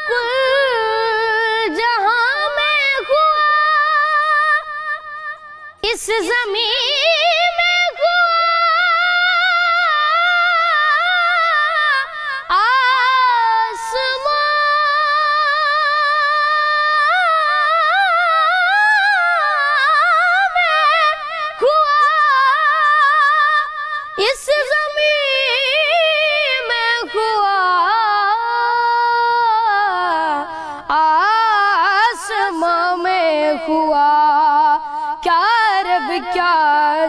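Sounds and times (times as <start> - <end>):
boy singing unaccompanied: 0.0 - 37.0.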